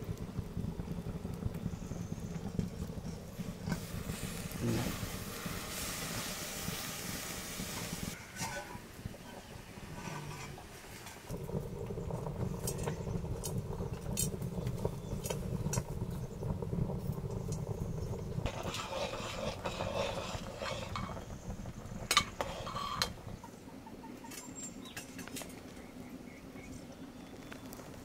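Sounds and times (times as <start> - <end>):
low rumble: 0.0 - 8.2, 11.3 - 18.8.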